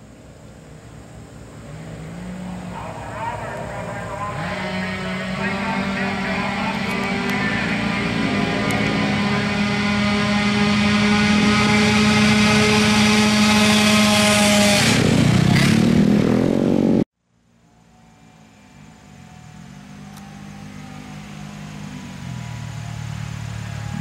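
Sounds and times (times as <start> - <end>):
scooter engines revving: 0.6 - 17.0, 17.6 - 24.0
scooter engine at full throttle: 1.5 - 17.0, 18.7 - 24.0.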